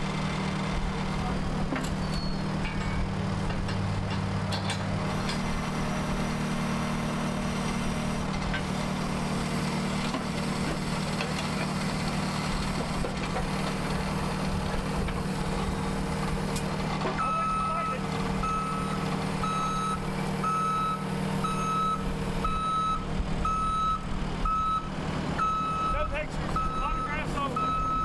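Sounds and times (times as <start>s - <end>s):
diesel engine idling: 0.0s - 28.0s.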